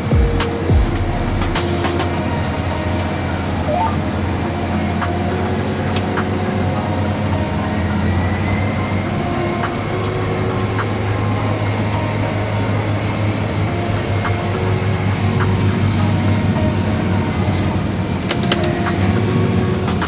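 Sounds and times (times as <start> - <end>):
tractor engine humming: 0.0 - 20.0.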